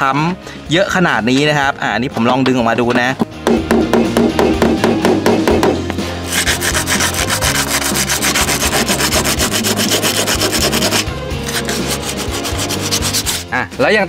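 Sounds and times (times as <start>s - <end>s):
sandpaper rubbing on metal: 6.3s - 13.5s.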